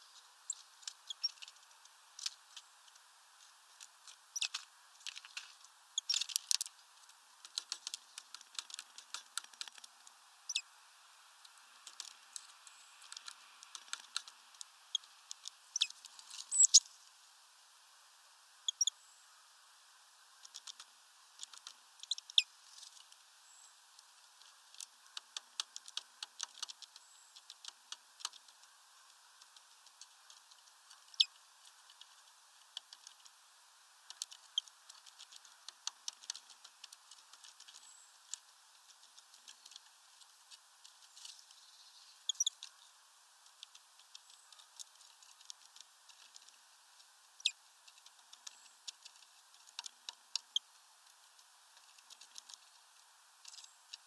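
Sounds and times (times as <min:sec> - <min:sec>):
sharp clicks and ticks: 0:11.8 - 0:15.6
high thin peeps: 0:15.7 - 0:16.8, 0:42.3 - 0:42.6.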